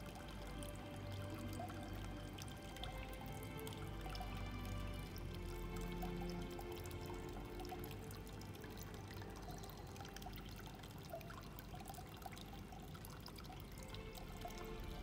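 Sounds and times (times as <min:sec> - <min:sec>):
water drips and plinks: 0:00.0 - 0:15.0
water trickling: 0:00.0 - 0:15.0.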